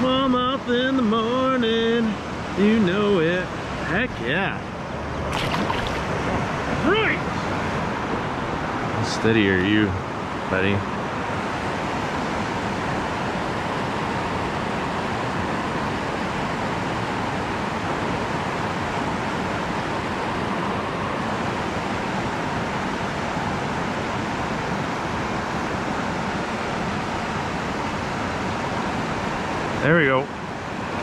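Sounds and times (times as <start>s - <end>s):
river water rushing over rocks: 4.6s - 9.0s, 9.8s - 31.0s.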